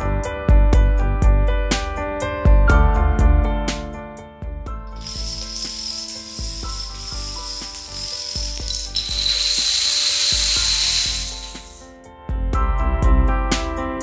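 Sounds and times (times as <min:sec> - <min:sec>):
background music: 0:00.0 - 0:14.0
dominoes clattering: 0:04.9 - 0:11.8.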